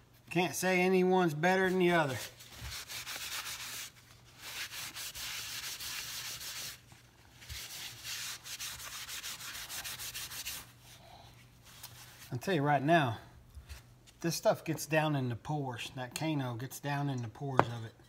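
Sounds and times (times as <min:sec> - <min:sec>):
paper towel scrubbing metal: 0:01.5 - 0:10.8.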